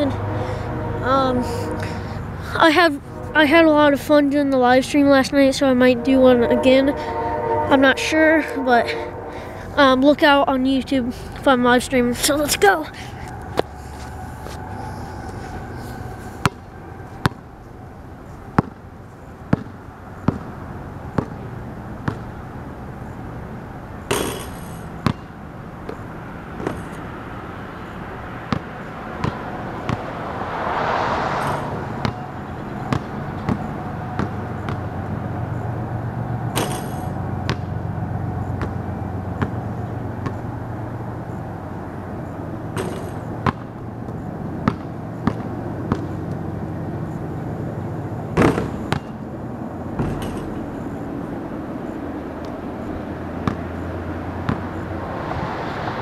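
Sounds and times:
steady low hum: 0.0s - 56.0s
basketball bouncing on concrete: 19.5s - 20.5s, 21.2s - 21.4s, 22.0s - 22.3s, 25.0s - 25.3s, 28.5s - 30.0s, 32.9s - 34.8s, 37.5s - 37.7s, 38.6s - 38.8s, 39.4s - 39.6s, 42.8s - 46.2s, 48.4s - 49.2s, 53.4s - 53.7s, 54.5s - 54.8s.

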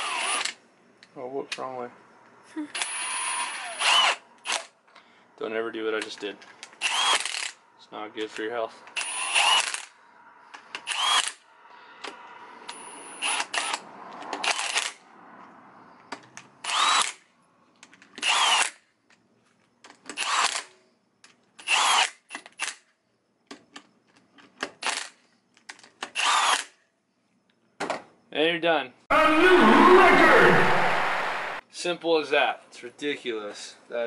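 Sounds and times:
impact wrench bursts: 2.8s - 4.7s, 6.6s - 7.6s, 8.9s - 10.0s, 10.6s - 13.8s, 16.6s - 17.2s, 18.2s - 18.8s, 21.6s - 22.7s, 26.1s - 26.7s.

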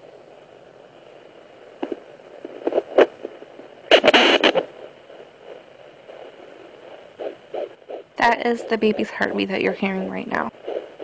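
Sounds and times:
faint heartbeat pulses: 0.1s - 11.0s
probe scraping and crackling: 0.9s - 11.0s
doppler speaker hissing: 3.9s - 11.0s.

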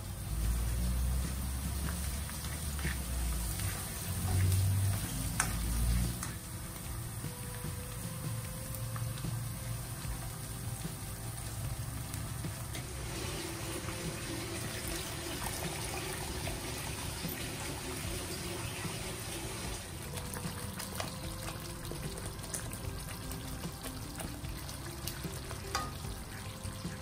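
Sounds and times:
sauce sizzling and bubbling in a wok: 0.0s - 27.0s
liquid pouring: 12.8s - 27.0s.

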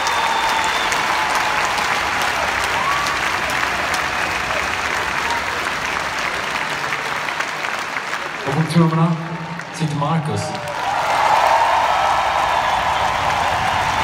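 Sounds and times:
whistles from crowd: 0.0s - 1.7s
arena crowd applauding: 0.0s - 14.0s.

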